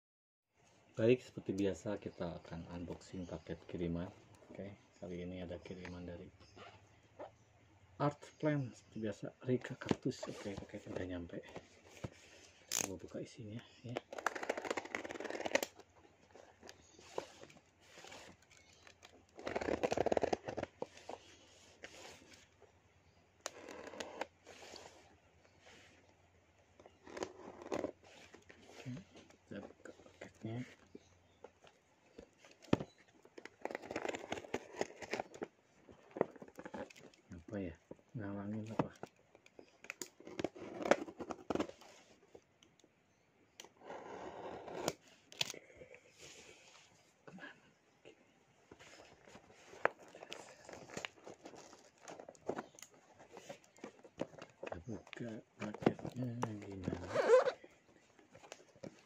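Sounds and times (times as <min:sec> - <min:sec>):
scraping and rustling at microphone: 0:08.2 - 0:22.6, 0:23.5 - 0:26.1, 0:26.7 - 0:42.4, 0:46.0 - 0:47.2, 0:48.7 - 0:59.0
packing tape crackling rip: 0:14.1 - 0:15.8, 0:17.0 - 0:20.7.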